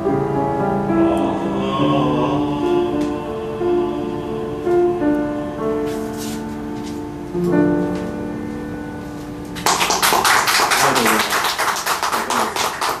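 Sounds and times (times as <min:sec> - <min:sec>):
piano chords: 0:00.0 - 0:13.0
audience applause: 0:09.6 - 0:13.0.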